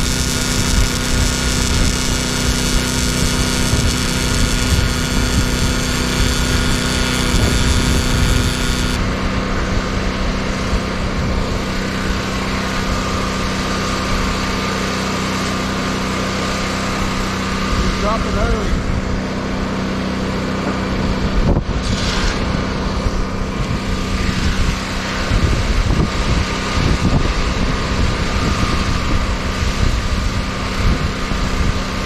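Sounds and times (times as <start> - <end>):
hissing power tool: 0.0 - 9.0
small engine running: 0.0 - 9.4.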